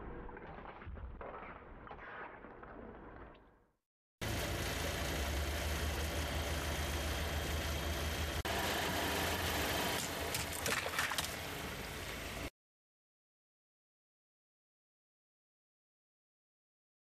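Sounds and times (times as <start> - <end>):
car engine idling: 4.2 - 12.5
water balloons bursting: 10.0 - 11.5.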